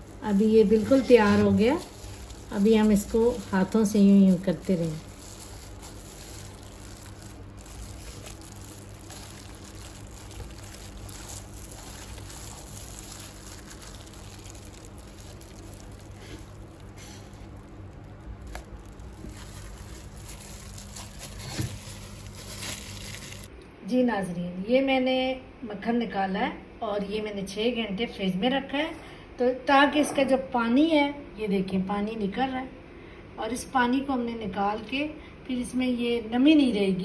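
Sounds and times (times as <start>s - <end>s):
steady low hum: 0.0s - 25.9s
wet squelching of butter: 0.1s - 23.5s.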